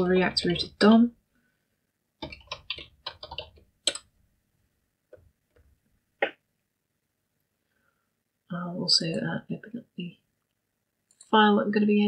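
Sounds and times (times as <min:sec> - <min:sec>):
computer keyboard keystrokes: 0:02.2 - 0:04.1.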